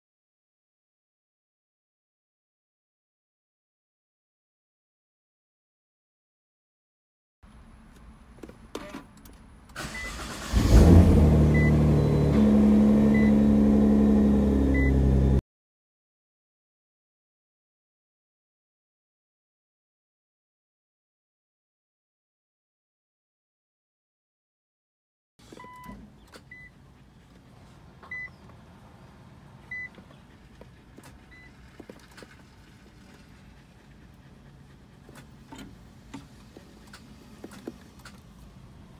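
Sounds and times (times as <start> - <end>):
car engine starting and idling: 7.5 - 15.4, 25.4 - 38.9.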